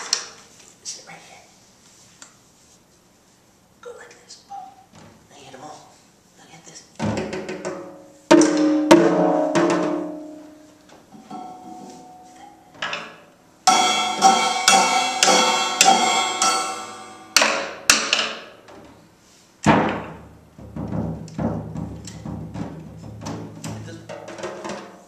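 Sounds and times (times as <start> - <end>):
drum hits: 7.0 - 10.6, 13.7 - 18.3, 19.6 - 25.0
cymbal strikes ringing: 13.6 - 17.8.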